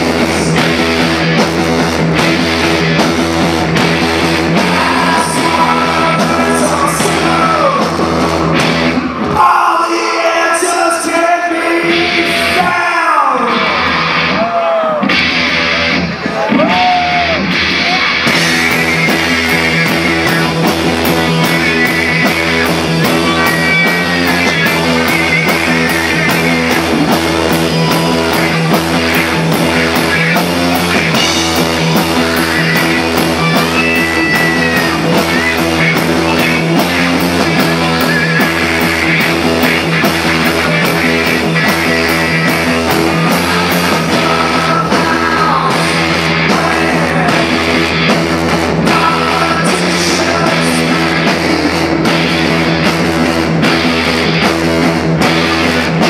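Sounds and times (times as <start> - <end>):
rock band playing: 0.0 - 56.0
man singing: 4.4 - 8.5, 9.2 - 13.7, 21.4 - 30.4, 32.0 - 48.1, 48.8 - 52.2.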